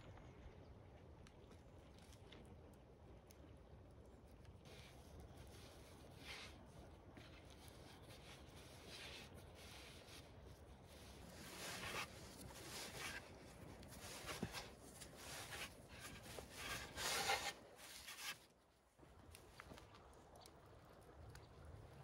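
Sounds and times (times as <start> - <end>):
hands kneading dough: 4.7 - 18.4.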